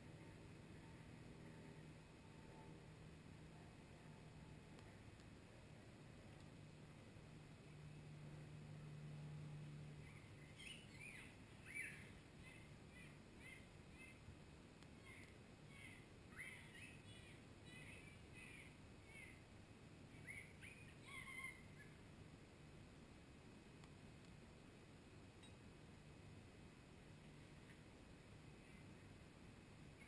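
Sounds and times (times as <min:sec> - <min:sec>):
faint low hum: 0:00.0 - 0:30.0
faint bird chirps: 0:09.8 - 0:22.1, 0:28.5 - 0:29.2.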